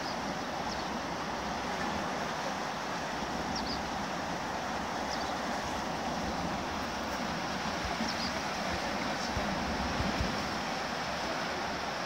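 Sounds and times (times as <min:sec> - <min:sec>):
fast river water rushing: 0:00.0 - 0:12.0.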